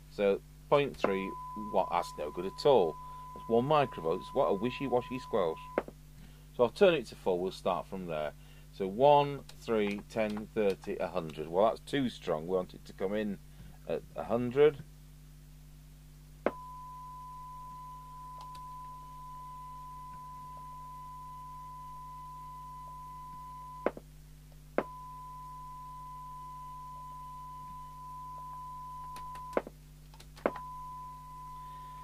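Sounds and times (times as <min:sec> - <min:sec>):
steady test tone from radio speaker: 0:00.2 - 0:05.9, 0:16.5 - 0:24.0, 0:24.8 - 0:29.7, 0:30.5 - 0:32.0.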